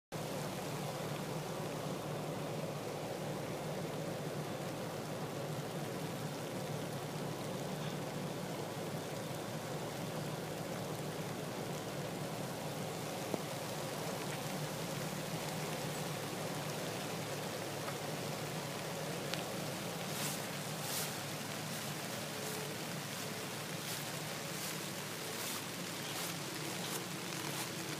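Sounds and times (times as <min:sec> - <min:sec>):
steady rain falling: 0:00.1 - 0:27.9.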